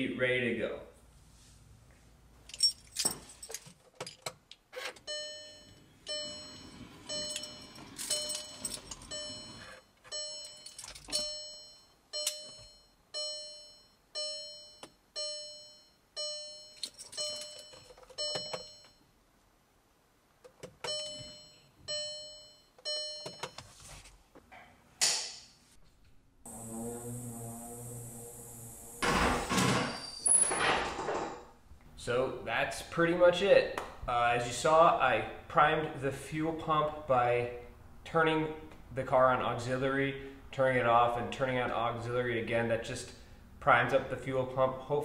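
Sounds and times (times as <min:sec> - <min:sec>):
dashboard warning chime dings: 0:05.0 - 0:19.0, 0:20.8 - 0:23.6.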